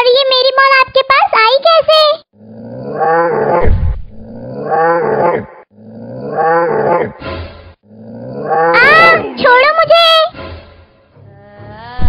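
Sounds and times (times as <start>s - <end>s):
monster roar: 2.4s - 7.2s, 7.8s - 9.4s
deep thud: 3.6s - 4.4s.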